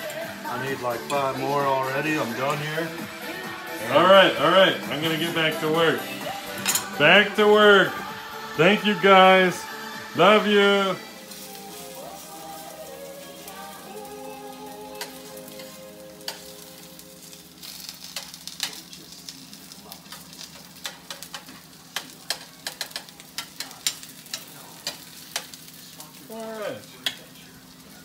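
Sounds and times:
metal spoon scraping a pan: 6.5 - 7.0
pancakes sizzling in oil: 9.2 - 28.0.

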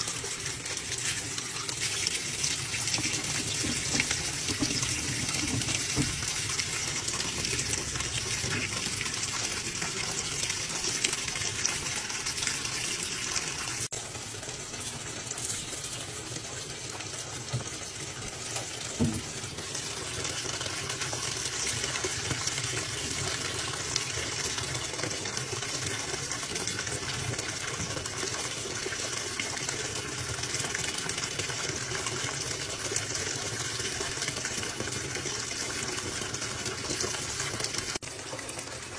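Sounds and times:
water gushing into washing machine: 0.0 - 38.9.

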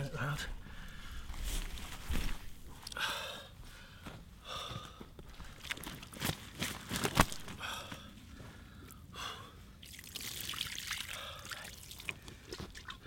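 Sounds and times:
water splashing and trickling: 9.8 - 13.0.

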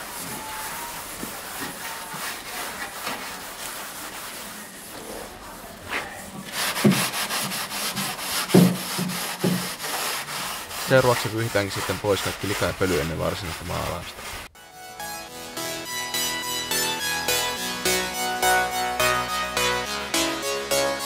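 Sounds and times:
sandpaper rubbing on metal panel: 0.0 - 14.5.

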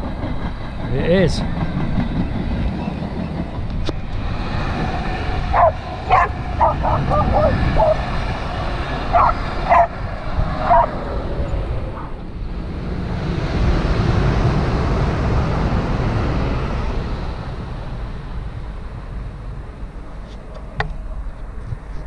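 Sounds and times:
passing train rushing: 0.0 - 21.6
dog yipping: 5.6 - 8.0, 9.2 - 9.9, 10.6 - 10.9.

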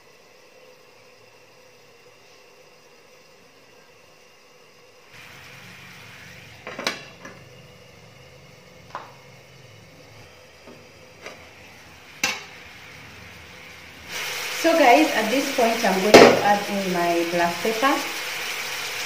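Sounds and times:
pan lid clanking: 6.6 - 7.4, 12.2 - 12.5, 16.1 - 16.5.

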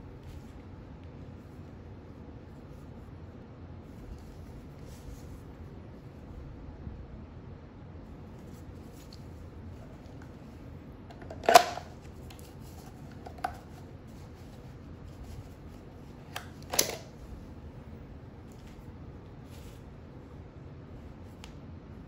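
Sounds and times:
rustling of gloved hands: 8.2 - 21.5.

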